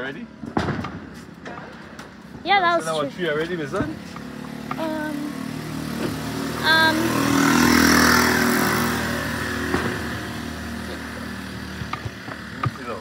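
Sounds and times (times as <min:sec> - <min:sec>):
car passing: 0:02.6 - 0:13.0.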